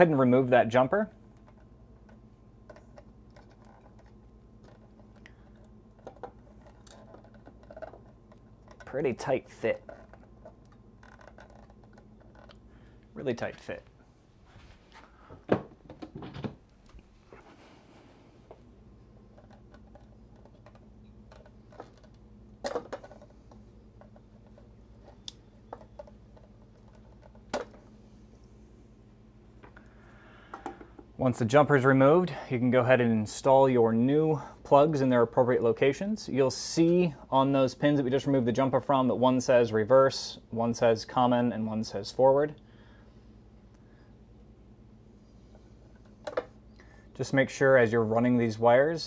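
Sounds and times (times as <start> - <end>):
low steady hum: 0.0 - 49.0
small clicks and scratches: 1.4 - 12.6, 19.2 - 22.2, 23.0 - 27.6.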